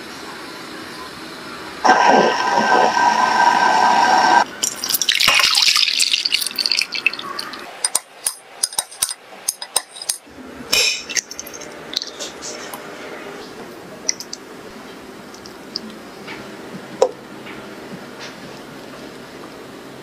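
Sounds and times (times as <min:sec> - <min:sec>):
liquid boiling in a pot: 0:04.4 - 0:09.1
liquid pouring into a glass dish: 0:04.6 - 0:07.6.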